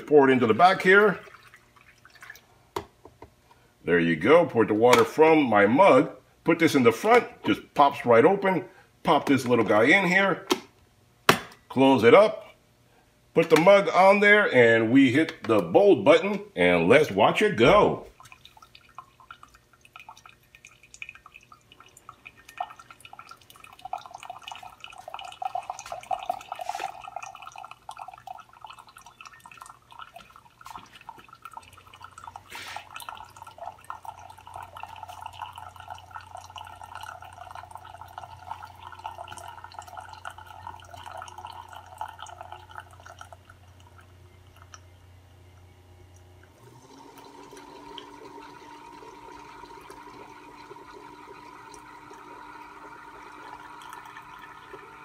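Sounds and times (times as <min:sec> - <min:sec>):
coffee maker gurgling and sputtering: 0:00.0 - 0:02.5, 0:16.7 - 0:44.9, 0:46.1 - 0:55.0
coffee dripping into mug: 0:18.1 - 0:44.9, 0:45.6 - 0:55.0.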